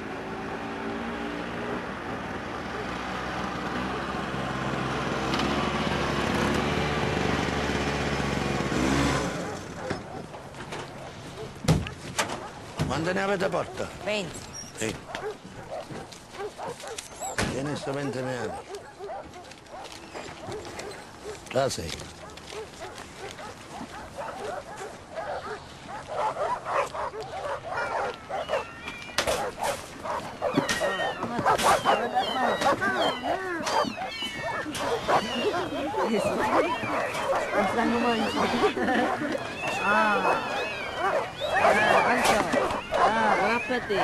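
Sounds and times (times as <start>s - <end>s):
small truck engine running: 0.0s - 11.0s
puppies yelping and whimpering: 13.5s - 21.6s, 22.2s - 44.0s.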